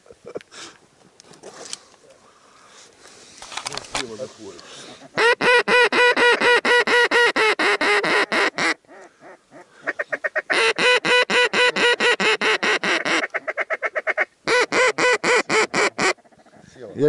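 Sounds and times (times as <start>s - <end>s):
duck call quacks: 5.0s - 16.4s.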